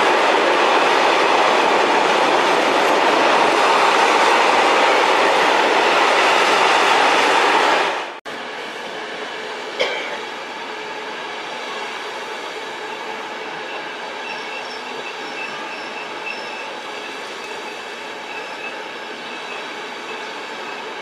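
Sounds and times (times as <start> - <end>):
train coaches rolling past: 0.0 - 21.0
high-pitched wheel squeals: 13.0 - 21.0.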